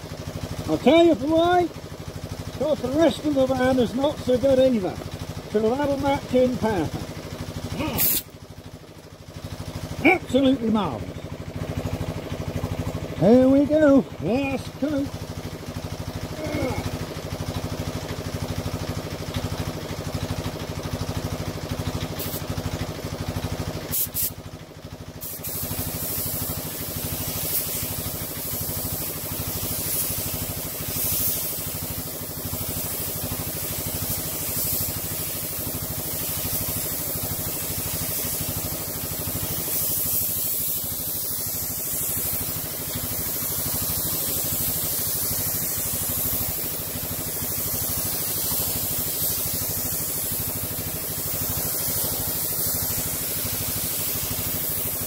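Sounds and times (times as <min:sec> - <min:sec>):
steady mechanical hum: 0:00.0 - 0:55.0
spray gun hissing: 0:07.8 - 0:08.3, 0:22.1 - 0:22.6, 0:23.9 - 0:24.4, 0:25.2 - 0:55.0.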